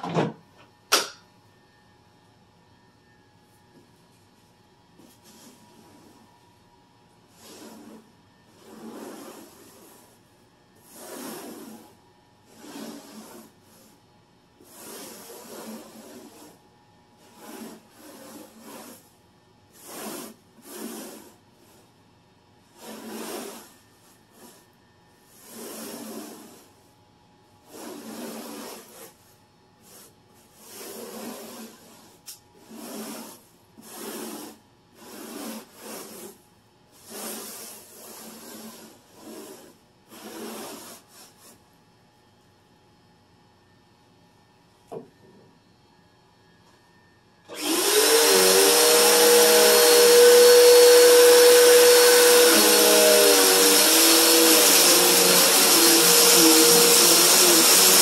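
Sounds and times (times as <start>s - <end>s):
broom brushing a rug: 5.0s - 6.3s, 7.2s - 14.0s, 14.6s - 16.6s, 17.2s - 19.1s, 19.7s - 22.0s, 22.7s - 24.7s, 25.3s - 26.9s, 27.6s - 41.6s.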